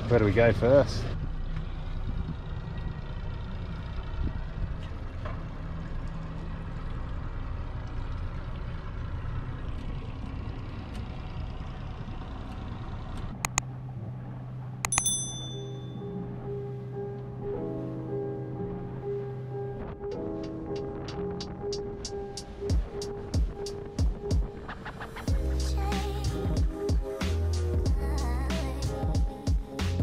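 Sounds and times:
outboard motor drone: 0.0s - 20.3s.

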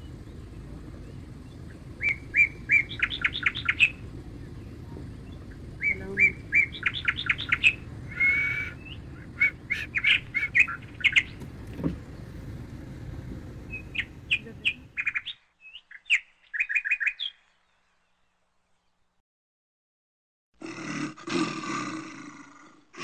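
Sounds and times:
low steady rumble: 0.0s - 15.3s
small birds chirping: 0.0s - 19.2s.

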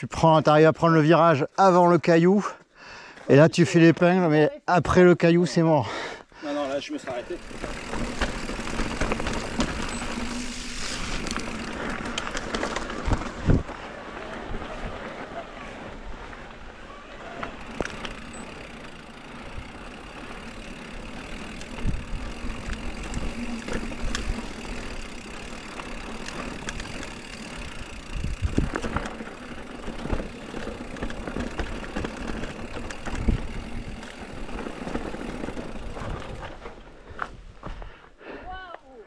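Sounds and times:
bike tyres and frame rattling: 6.5s - 38.0s
bike knocking over bumps: 7.5s - 10.4s.

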